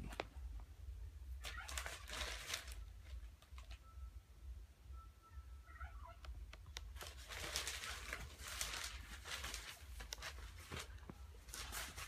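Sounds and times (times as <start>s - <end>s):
newspaper and bedding rustling: 1.4s - 3.8s, 6.9s - 12.0s.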